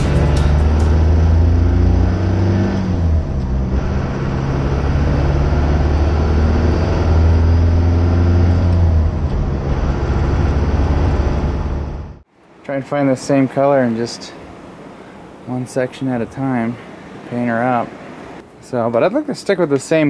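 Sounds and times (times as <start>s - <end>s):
diesel engine shifting gears: 0.0s - 12.3s.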